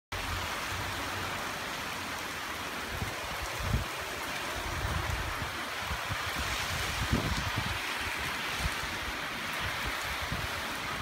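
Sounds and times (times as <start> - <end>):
heavy rain falling: 0.1 - 11.0
wind gusts on microphone: 2.7 - 11.0.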